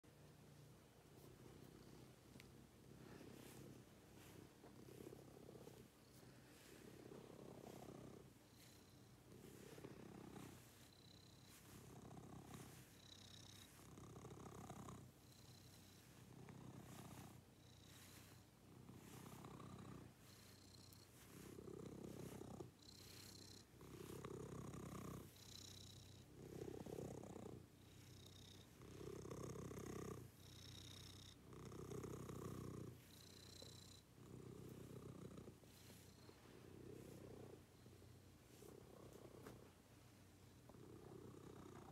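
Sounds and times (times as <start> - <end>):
cat purring: 0.1 - 41.9.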